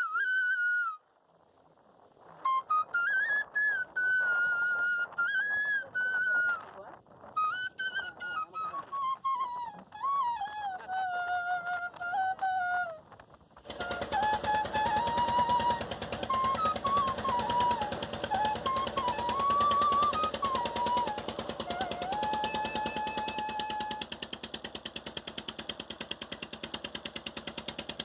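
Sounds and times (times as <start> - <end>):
boat engine puttering: 13.6 - 28.0
gliding melody: 13.7 - 24.1
wavering melody: 13.7 - 24.3.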